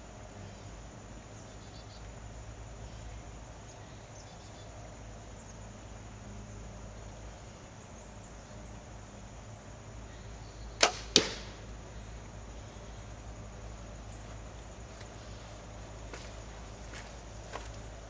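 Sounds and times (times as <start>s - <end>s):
faint insect hum: 0.0s - 18.0s
arrow hitting target: 10.8s - 11.6s
bow string snap: 10.8s - 11.6s.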